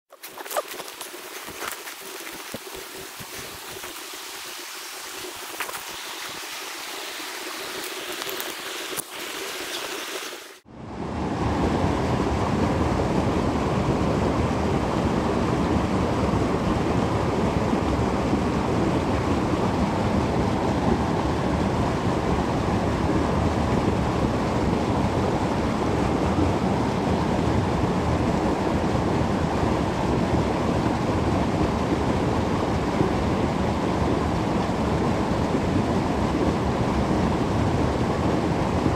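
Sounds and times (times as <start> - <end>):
footsteps through dry leaves: 0.1 - 6.3
creek rushing over shallows: 0.1 - 10.6.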